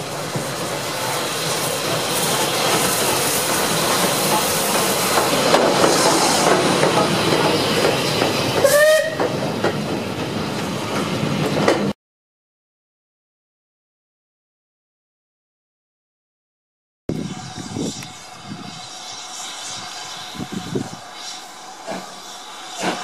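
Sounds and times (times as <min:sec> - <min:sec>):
steam hissing: 0:00.0 - 0:11.4, 0:17.1 - 0:23.0
train wheels on rails: 0:00.0 - 0:12.0, 0:17.1 - 0:23.0
pitched squeal: 0:17.1 - 0:23.0.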